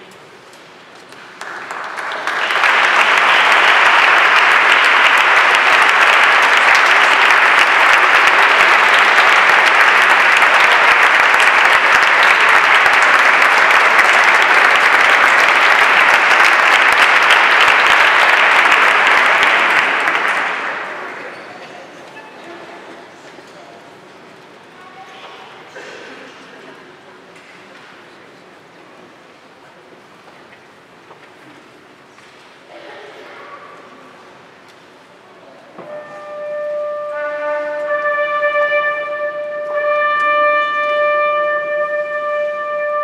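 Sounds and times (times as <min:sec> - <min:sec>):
audience applauding: 0:01.1 - 0:21.5.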